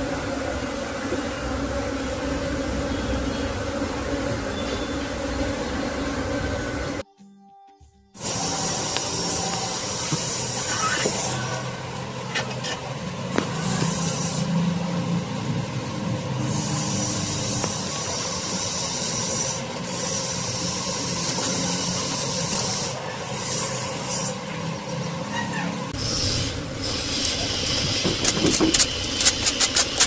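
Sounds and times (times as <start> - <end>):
bees humming: 0.0 - 7.0, 8.2 - 29.6.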